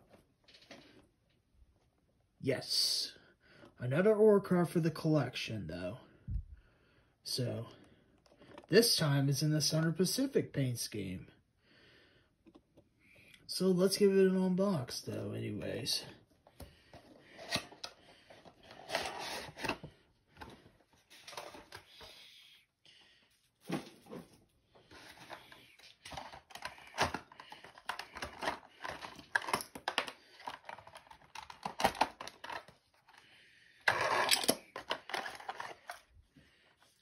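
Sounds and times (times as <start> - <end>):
packaging rustling and clicking: 24.8 - 33.2, 33.9 - 36.1.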